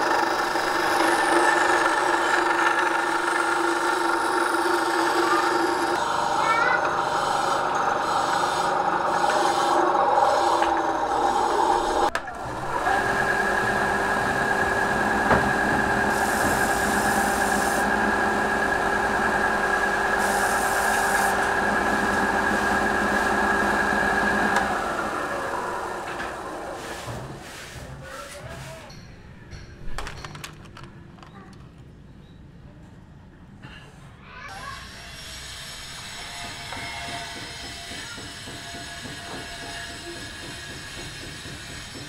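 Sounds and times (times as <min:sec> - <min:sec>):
band saw cutting wood: 0:00.0 - 0:26.6, 0:34.8 - 0:42.0.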